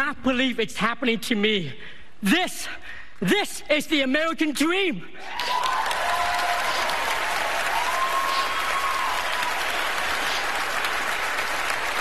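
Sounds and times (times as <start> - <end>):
faint whoop: 5.2 - 9.6
audience applauding: 5.2 - 12.0.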